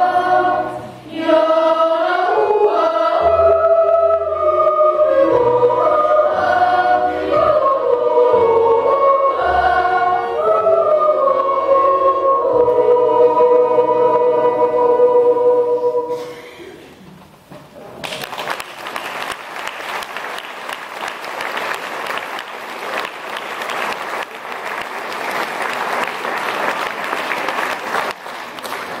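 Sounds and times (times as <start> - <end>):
audience applauding: 18.0 - 29.0.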